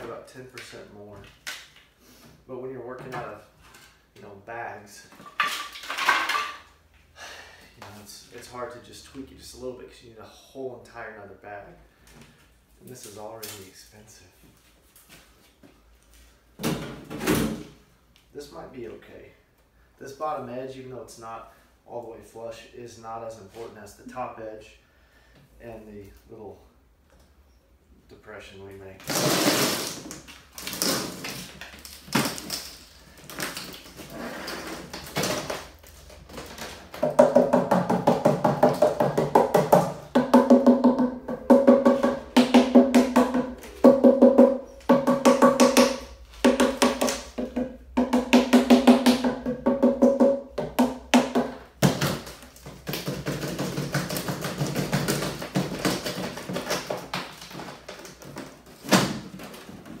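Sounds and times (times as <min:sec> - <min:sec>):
mallet rapping plastic mold: 0:37.0 - 0:57.2.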